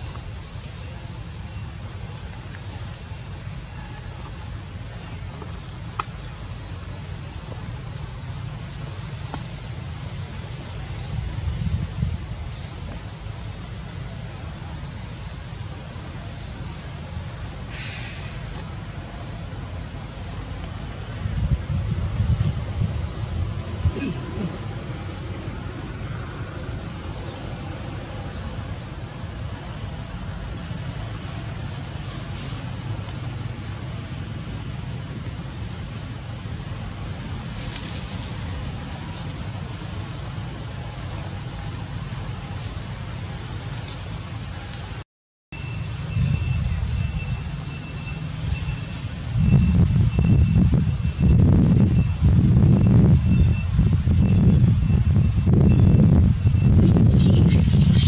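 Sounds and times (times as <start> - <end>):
low outdoor rumble: 0.0 - 45.0
wind rumble on microphone: 7.0 - 14.7, 18.4 - 32.4, 45.8 - 47.6, 48.4 - 58.0.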